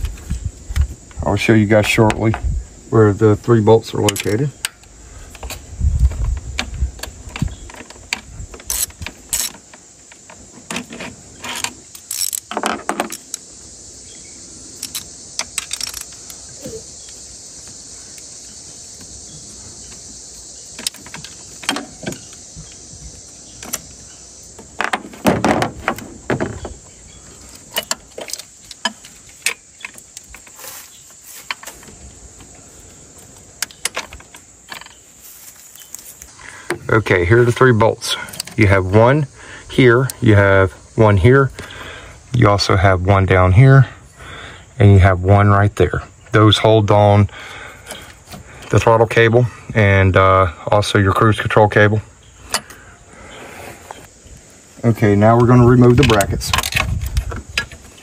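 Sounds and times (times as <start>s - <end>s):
ratchet clicking: 12.0s - 12.5s.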